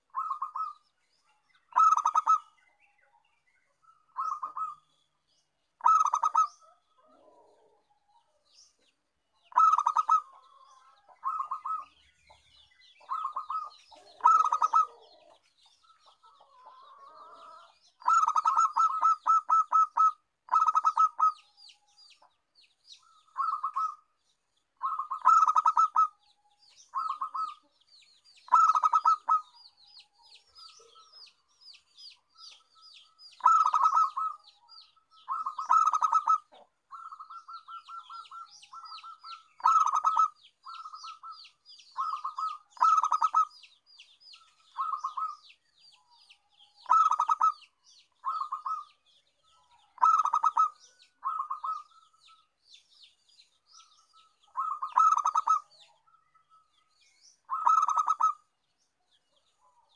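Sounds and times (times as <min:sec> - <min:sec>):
dove cooing: 0:00.0 - 0:00.8, 0:01.7 - 0:02.6, 0:03.9 - 0:04.9, 0:05.8 - 0:08.4, 0:09.5 - 0:12.0, 0:13.0 - 0:21.4, 0:23.0 - 0:24.0, 0:24.8 - 0:26.2, 0:26.8 - 0:27.7, 0:28.5 - 0:29.6, 0:33.4 - 0:43.6, 0:44.4 - 0:45.5, 0:46.8 - 0:52.2, 0:54.4 - 0:56.1, 0:57.5 - 0:58.5
small birds chirping: 0:00.0 - 0:59.9.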